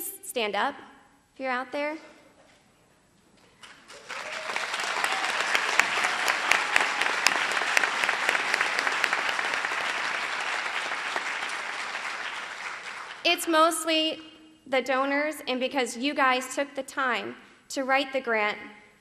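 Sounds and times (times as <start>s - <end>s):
audience applauding: 3.6s - 13.2s.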